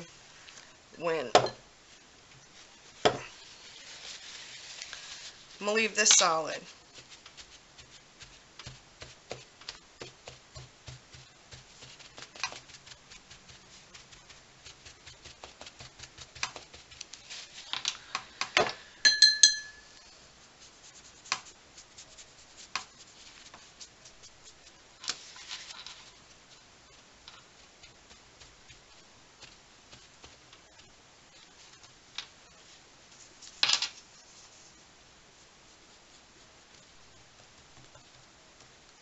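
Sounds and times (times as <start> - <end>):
paper blotting wet paint: 0.0 - 18.9, 20.2 - 39.0
glass clinks: 19.1 - 20.0.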